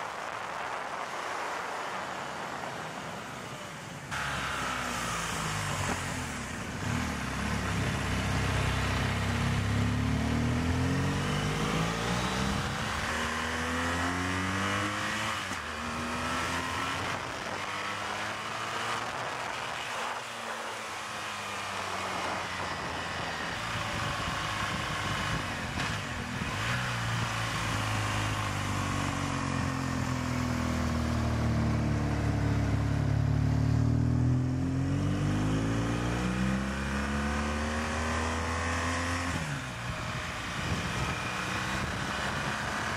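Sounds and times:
motorcycle engine revving: 4.1 - 42.9
wind rush: 39.4 - 42.9.

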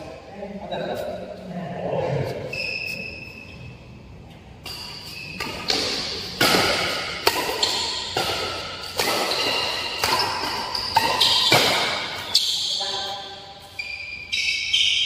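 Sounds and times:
shoes squeaking on court: 2.5 - 3.9, 4.6 - 15.0
rackets hitting shuttlecock: 4.6 - 15.0.

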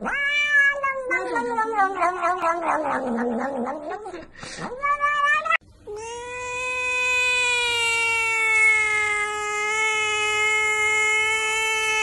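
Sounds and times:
cat meowing: 0.0 - 12.0
cat yowling: 0.0 - 12.0.

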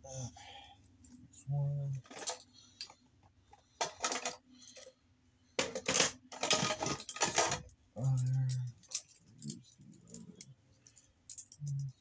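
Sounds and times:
hard objects clattering: 2.0 - 3.0, 3.6 - 4.9, 5.6 - 10.5.

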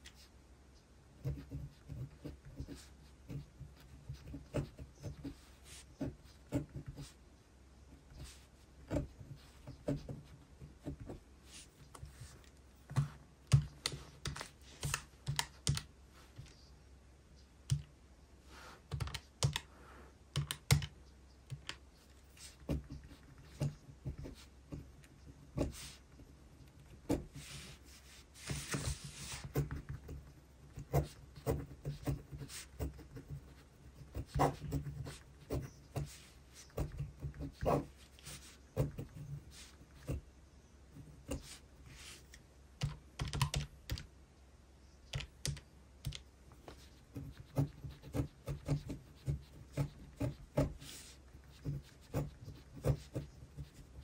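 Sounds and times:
pen tapping and scratching on paper: 8.8 - 11.2, 12.0 - 15.9, 28.4 - 39.2, 45.2 - 54.0.

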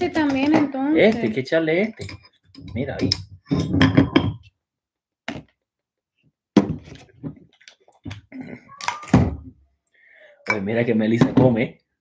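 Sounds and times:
glass bottle thunks and clinks: 1.9 - 4.5, 6.6 - 7.4, 10.5 - 11.6.

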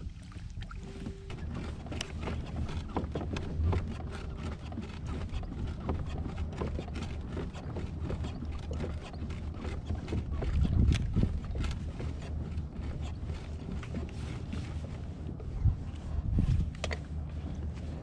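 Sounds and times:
water lapping against kayak: 0.0 - 18.0
low rumble: 15.0 - 18.0.

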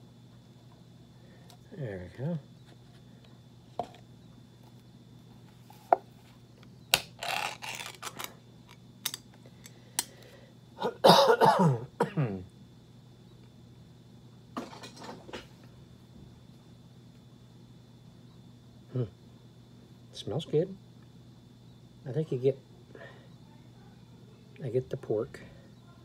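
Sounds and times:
man coughing: 10.8 - 12.4.

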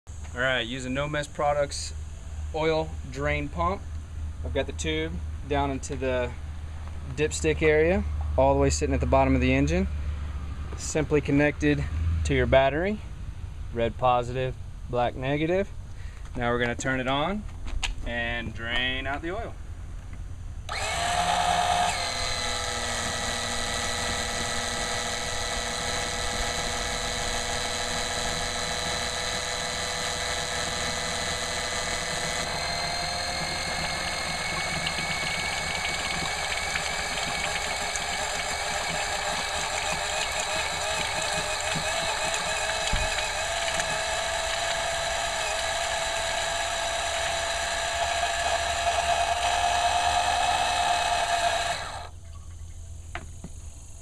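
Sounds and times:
electric pump whining: 20.7 - 52.2.

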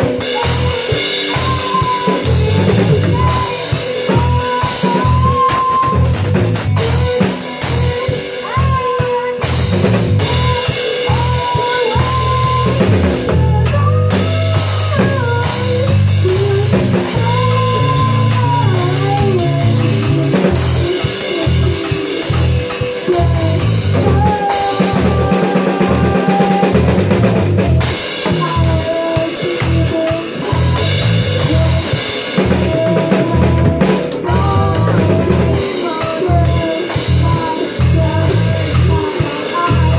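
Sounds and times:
drum kit: 0.0 - 39.9
electric guitar: 0.0 - 39.9
keyboard: 0.0 - 39.9
low bass line: 4.1 - 8.0, 12.0 - 28.9, 32.5 - 35.6.

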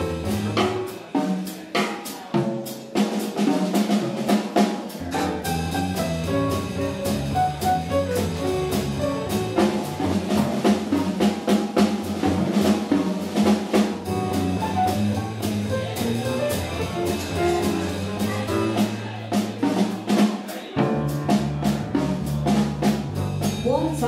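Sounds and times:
electric bass: 0.0 - 0.9, 5.0 - 19.5, 20.8 - 24.0
drum kit with cymbal hits: 0.0 - 24.0.

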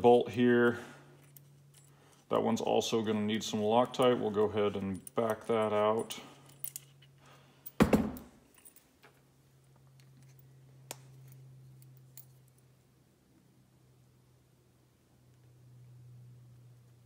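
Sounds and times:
low steady hum: 0.0 - 17.0
small metal clicks and clinks: 4.8 - 7.8, 8.5 - 12.7.

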